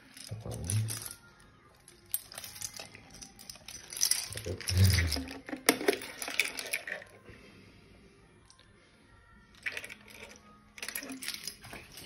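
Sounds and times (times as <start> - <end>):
keys jangling: 0.0 - 7.0, 9.6 - 12.0.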